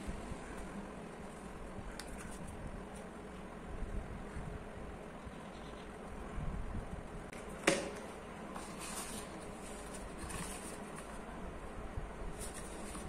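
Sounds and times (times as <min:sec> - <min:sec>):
paper rustling and sliding: 0:08.5 - 0:11.3, 0:12.3 - 0:13.0.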